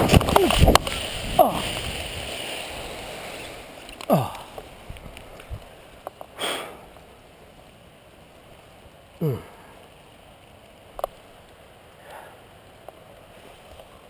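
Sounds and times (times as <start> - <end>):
person groaning: 1.4 - 1.8, 4.1 - 4.5, 9.2 - 9.6
person breathing out sharply: 6.4 - 6.9.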